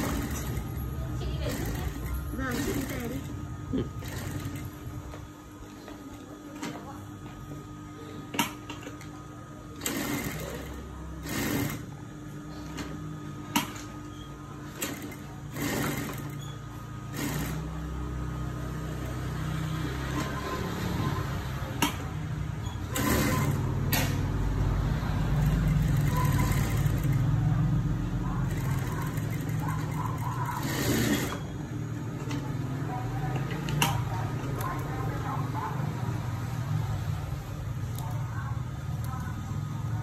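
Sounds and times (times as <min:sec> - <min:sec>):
sewing machine stitching: 0:00.0 - 0:05.0, 0:09.8 - 0:12.0, 0:13.6 - 0:17.8, 0:18.9 - 0:35.3.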